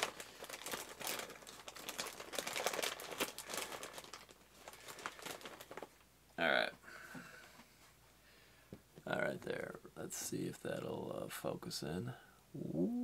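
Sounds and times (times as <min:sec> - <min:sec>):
plastic bags crinkling: 0:00.0 - 0:06.0.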